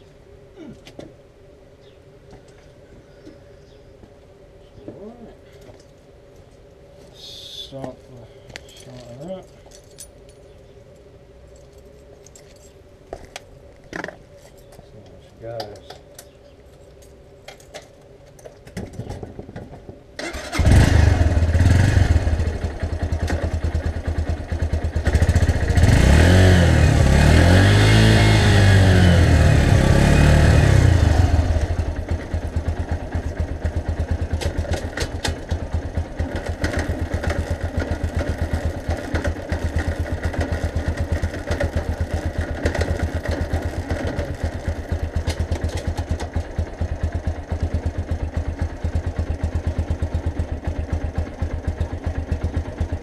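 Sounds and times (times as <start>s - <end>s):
motorcycle engine starting and revving: 18.7s - 53.0s.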